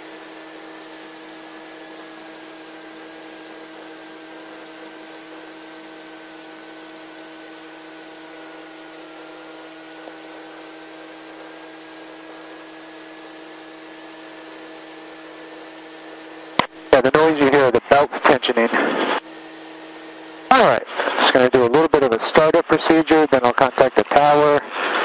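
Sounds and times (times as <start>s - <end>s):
low hum: 3.6s - 25.0s
faint whine: 14.5s - 25.0s.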